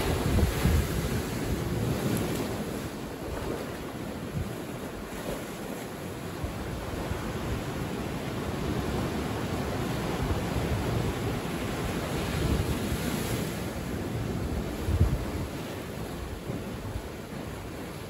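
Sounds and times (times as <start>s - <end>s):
waves breaking among rocks: 0.0s - 18.0s.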